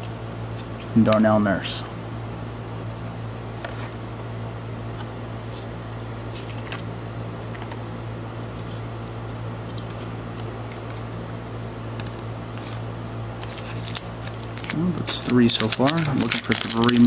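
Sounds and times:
low background hum: 0.0s - 17.0s
foil packs rustling: 13.4s - 17.0s.

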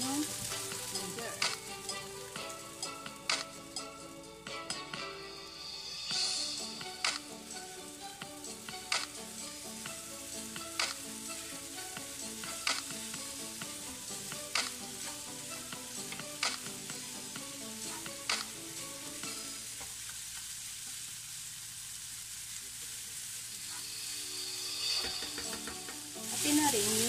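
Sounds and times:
background music with sharp beat: 0.0s - 19.5s, 24.6s - 26.7s
food sizzling in a wok: 0.0s - 27.0s
spatula stirring in a wok: 23.2s - 27.0s.

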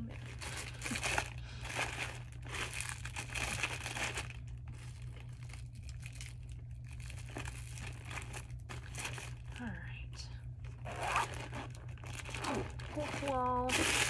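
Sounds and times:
packaging crinkling and rustling: 0.0s - 9.6s, 10.6s - 14.0s
steady low hum: 0.0s - 14.0s.

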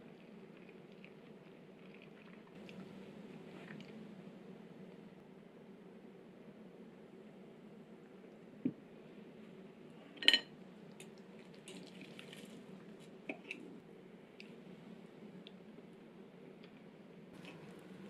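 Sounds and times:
low room hum: 0.0s - 18.0s
cutlery clinking on ceramic plate: 10.2s - 10.5s.

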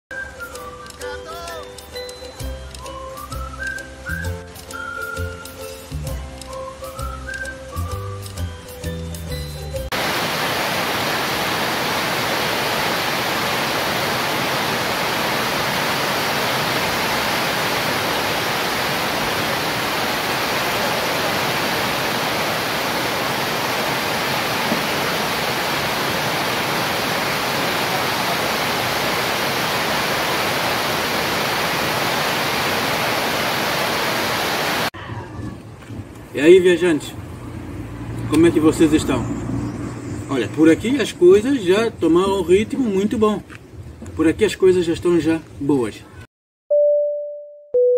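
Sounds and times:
heavy rain on metal roof: 9.9s - 34.9s.

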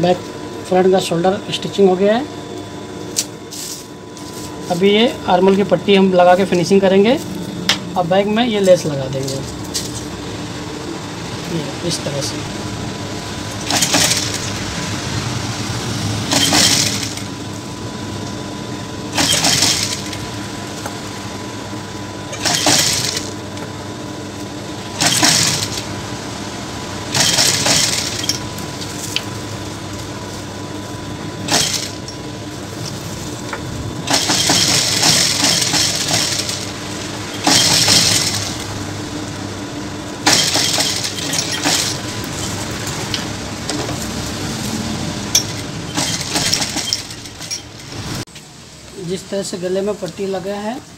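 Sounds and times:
sewing machine motor humming: 13.2s - 15.0s, 16.2s - 17.6s, 19.0s - 20.8s, 22.2s - 23.6s, 24.8s - 26.1s, 26.8s - 28.9s, 31.4s - 32.2s, 34.0s - 38.8s, 40.2s - 43.9s, 45.4s - 47.6s
sewing machine stitching: 13.6s - 14.6s, 16.3s - 17.3s, 19.1s - 20.2s, 22.3s - 23.3s, 25.0s - 25.9s, 27.1s - 28.4s, 31.5s - 32.0s, 34.1s - 36.7s, 37.4s - 38.6s, 40.2s - 42.0s, 45.9s - 47.5s.

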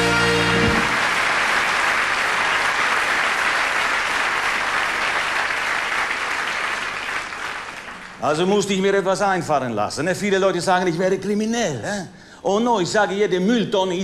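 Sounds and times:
band holding a chord: 0.0s - 1.0s
audience applauding: 0.0s - 8.9s.

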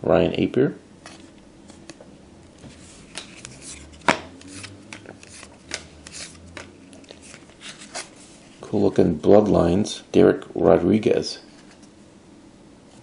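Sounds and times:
trading cards swishing and tapping: 1.1s - 8.3s.

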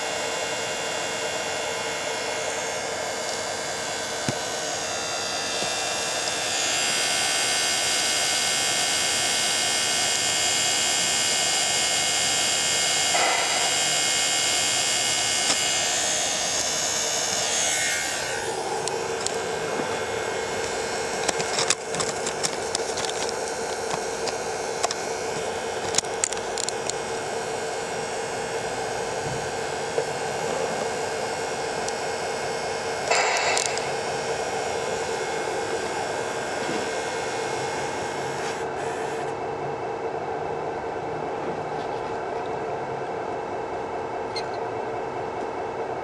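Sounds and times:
small electric pump motor whining: 0.0s - 39.5s
sharp clicks and ticks: 20.6s - 27.0s.

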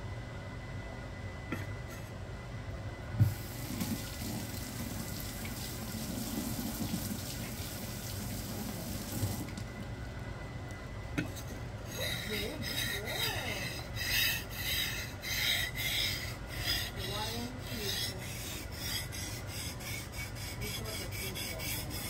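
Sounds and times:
tap water running into sink: 3.2s - 9.6s.

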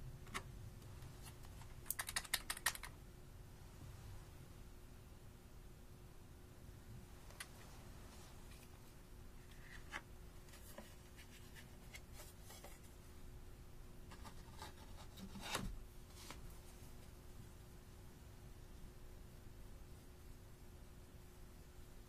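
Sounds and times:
hands handling plastic palette: 9.4s - 13.0s.

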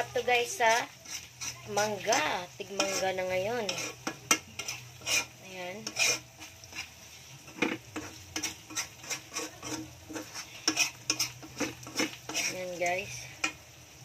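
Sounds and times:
spoon scraping frying pan: 0.0s - 13.6s
oil sizzling: 0.0s - 14.0s.

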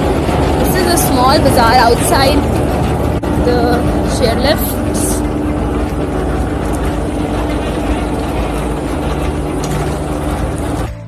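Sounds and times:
engine drone: 0.0s - 11.0s
outdoor background noise: 0.0s - 11.0s.

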